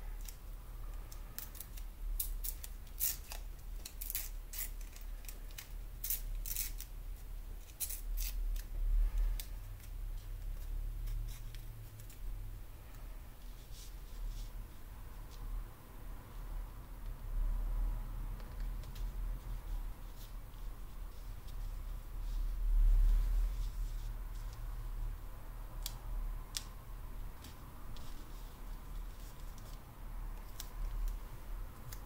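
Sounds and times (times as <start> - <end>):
paper tape tearing: 1.4 - 6.9.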